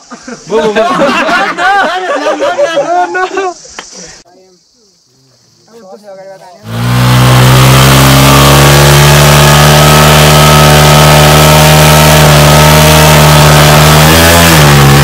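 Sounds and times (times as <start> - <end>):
motorcycle engine revving: 6.6 - 15.0.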